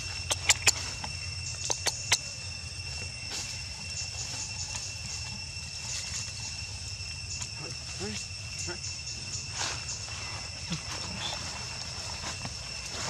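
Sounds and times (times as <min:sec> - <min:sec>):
high-pitched insect drone: 0:00.0 - 0:13.0
sharp clicks: 0:00.2 - 0:00.8, 0:01.6 - 0:02.2.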